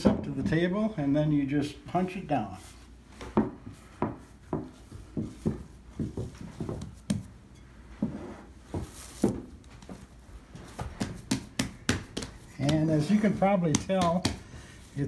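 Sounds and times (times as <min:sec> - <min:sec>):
dough being punched in a bowl: 0:10.8 - 0:14.6.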